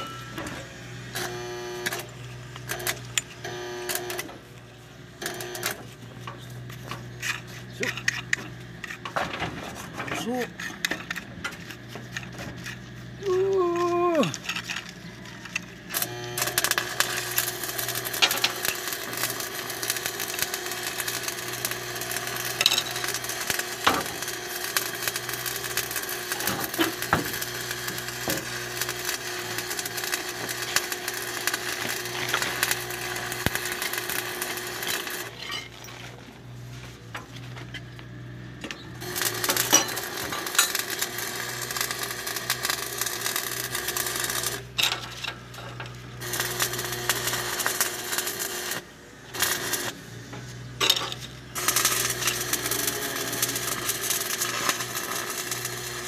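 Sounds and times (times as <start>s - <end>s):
mechanical hum: 0.0s - 56.0s
metal tools clinking and scraping: 6.2s - 13.0s, 34.8s - 38.0s, 38.6s - 41.0s, 44.7s - 46.0s, 50.3s - 52.5s.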